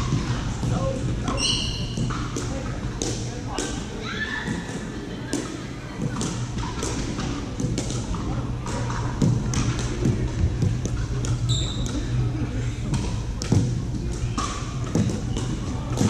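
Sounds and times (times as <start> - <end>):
ball bouncing on hardwood court: 0.1 - 3.8, 12.9 - 16.0
paddles hitting plastic ball: 4.5 - 12.0, 12.8 - 16.0
steady low hum: 4.6 - 16.0.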